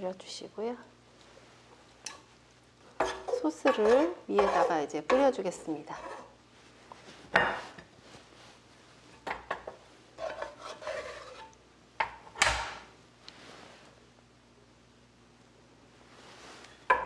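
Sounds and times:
utensil scraping plate: 0:03.0 - 0:06.3, 0:10.2 - 0:11.6.

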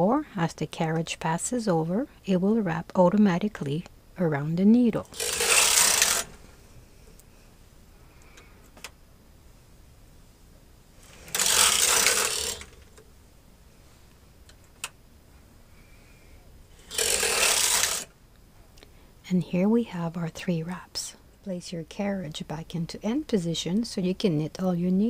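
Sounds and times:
knitting machine carriage rattling: 0:05.0 - 0:06.4, 0:11.0 - 0:13.0, 0:16.8 - 0:18.1.

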